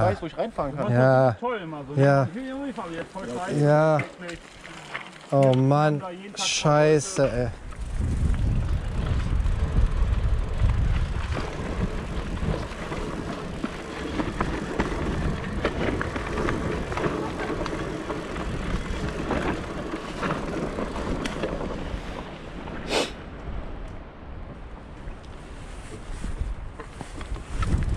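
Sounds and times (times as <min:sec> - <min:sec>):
tyre noise on trail: 0:00.0 - 0:27.9
bike clicks and rattles: 0:02.3 - 0:22.8, 0:26.7 - 0:27.9
low rumble: 0:07.5 - 0:21.8.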